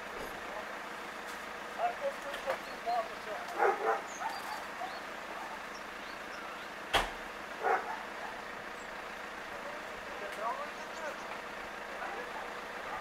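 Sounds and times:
bird chirps: 2.5s - 3.1s, 4.0s - 6.8s
distant dog bark: 3.5s - 5.7s, 7.6s - 8.6s, 12.0s - 13.0s.

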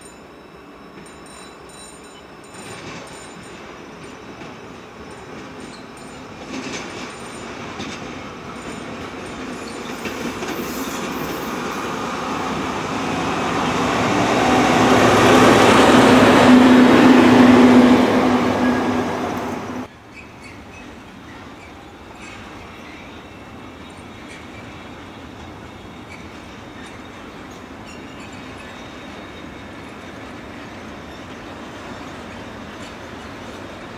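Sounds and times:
train wheels rumbling on rails: 0.8s - 33.9s
locomotive engine hum: 2.2s - 19.9s.

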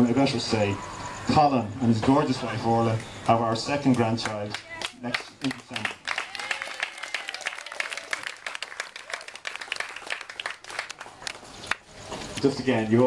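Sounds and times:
people applauding: 3.9s - 11.9s.

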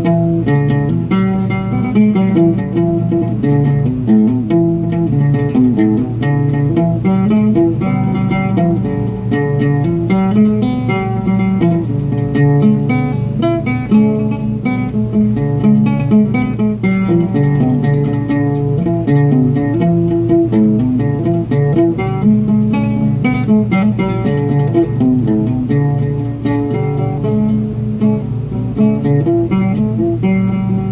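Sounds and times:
oud plucked notes: 0.0s - 30.9s.

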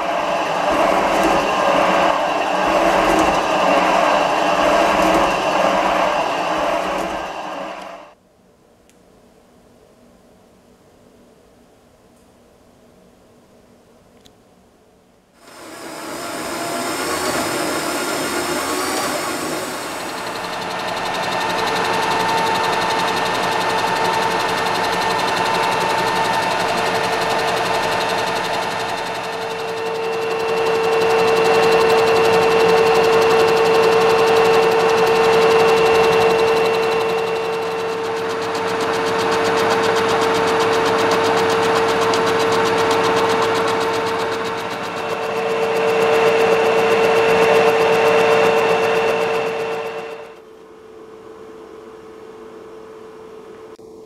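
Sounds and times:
band saw cutting metal: 0.0s - 8.2s, 15.4s - 50.4s
milling machine whine: 0.0s - 8.2s, 15.4s - 50.5s.

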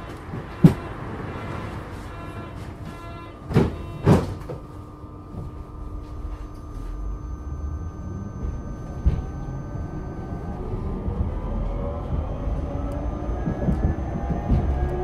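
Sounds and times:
tram door thump: 0.0s - 5.6s, 8.4s - 10.3s, 13.4s - 15.0s
electrical hum: 0.0s - 15.0s
rising traction whine: 0.0s - 15.0s.

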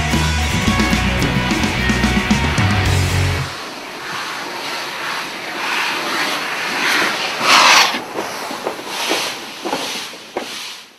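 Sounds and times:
steam locomotive hissing: 0.5s - 10.9s
locomotive exhaust gusts: 2.4s - 10.7s.

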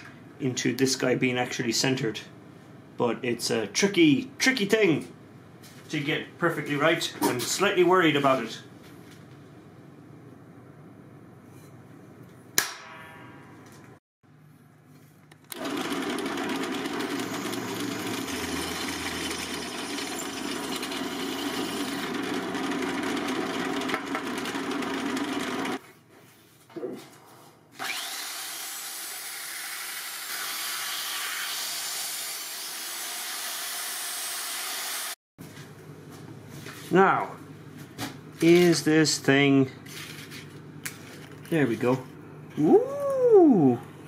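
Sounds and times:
cordless power tool running: 15.5s - 25.8s, 27.8s - 35.2s
drill press drilling metal: 15.5s - 25.8s.

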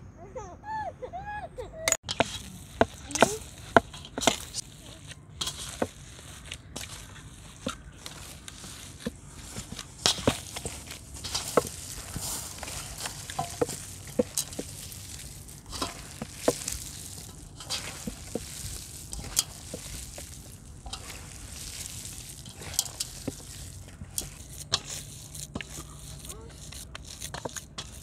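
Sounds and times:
hands kneading wet meat: 2.0s - 28.0s.

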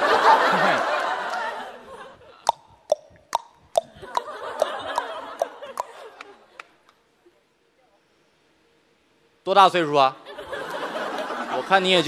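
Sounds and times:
audience laughter: 0.0s - 2.4s, 4.0s - 6.7s, 10.2s - 12.0s.

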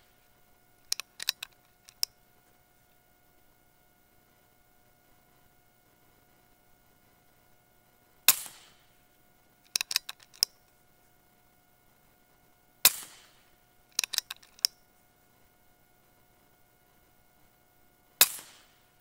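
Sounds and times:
metallic clicks of rifle action: 0.8s - 2.2s, 9.6s - 10.8s, 13.9s - 14.8s
air rifle shot: 8.3s - 9.0s, 12.8s - 13.5s, 18.2s - 18.8s.

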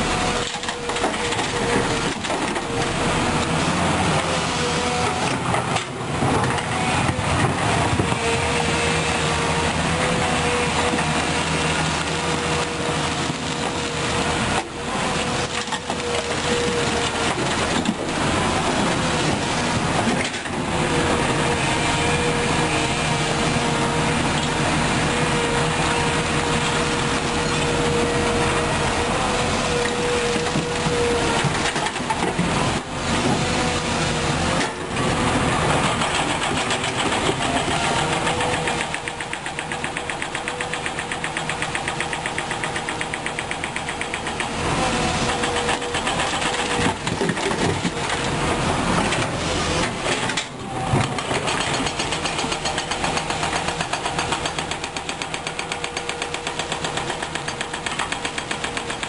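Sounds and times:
excavator digging into rock: 0.0s - 22.9s, 23.6s - 59.0s
excavator engine and hydraulics: 0.0s - 59.0s.

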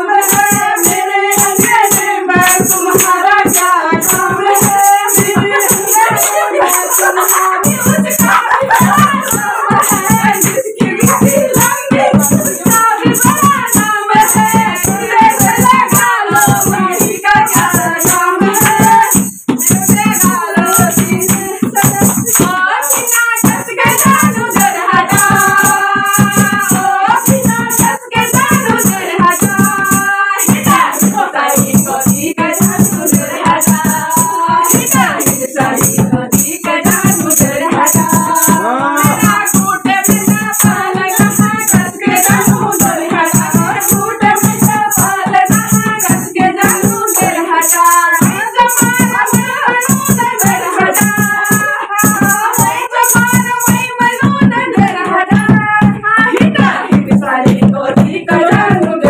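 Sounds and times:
rattling beat: 0.0s - 59.0s
women singing together: 0.0s - 59.0s
hand claps: 0.3s - 16.6s.

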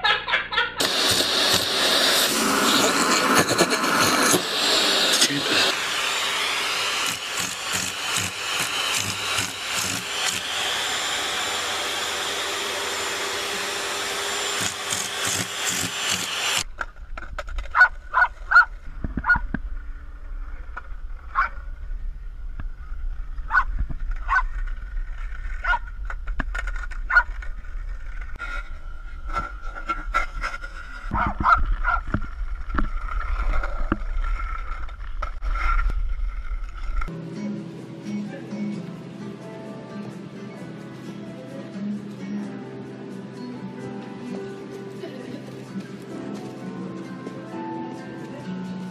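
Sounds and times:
vacuum cleaner running: 0.8s - 16.7s
small dog barking: 17.7s - 19.4s, 23.5s - 23.7s, 24.3s - 24.5s, 31.1s - 32.0s
wind rumble on microphone: 18.7s - 28.4s.

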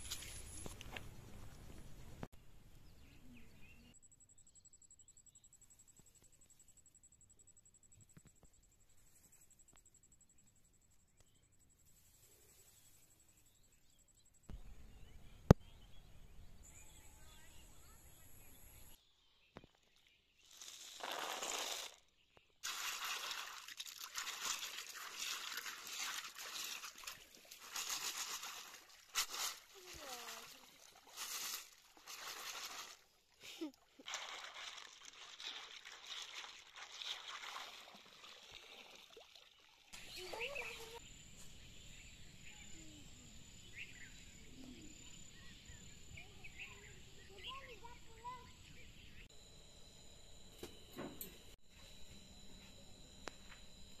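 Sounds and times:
water splash: 22.6s - 33.0s, 34.0s - 39.9s
water sloshing: 22.6s - 41.0s
bird chirps: 40.0s - 49.4s.

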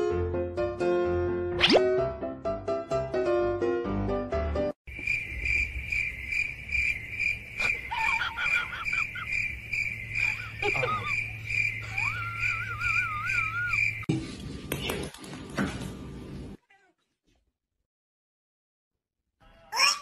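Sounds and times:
piano music: 0.0s - 4.8s
high-pitched chirping: 7.7s - 14.1s.

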